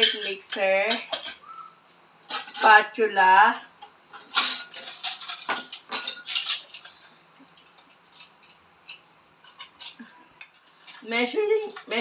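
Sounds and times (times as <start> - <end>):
metal utensils clinking: 0.0 - 1.5, 2.2 - 3.0, 4.1 - 12.0.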